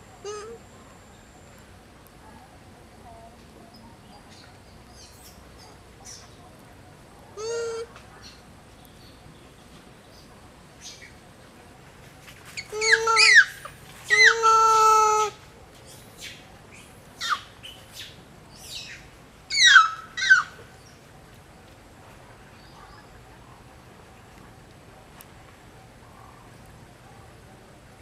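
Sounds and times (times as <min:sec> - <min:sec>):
long animal calls: 0:00.0 - 0:00.7, 0:12.7 - 0:15.4, 0:19.5 - 0:20.6.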